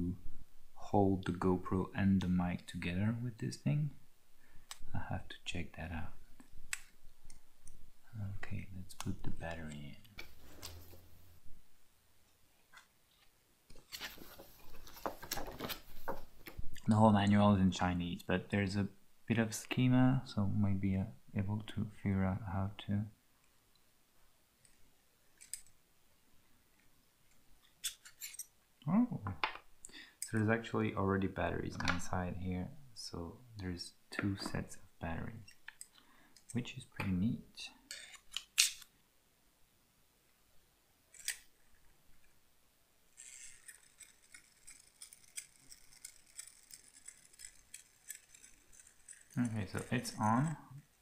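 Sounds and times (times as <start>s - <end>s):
small plastic parts rattling: 37.9s - 38.8s, 43.1s - 51.0s.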